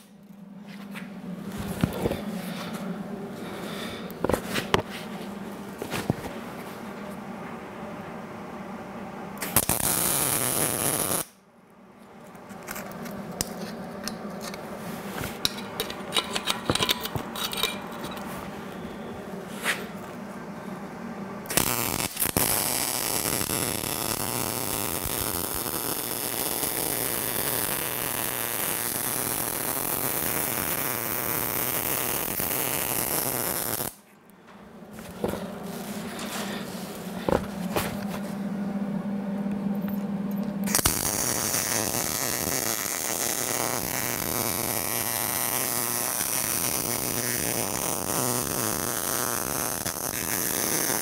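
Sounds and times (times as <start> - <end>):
welder arc crackling: 9.4 - 11.4, 21.4 - 34.0, 40.7 - 51.0.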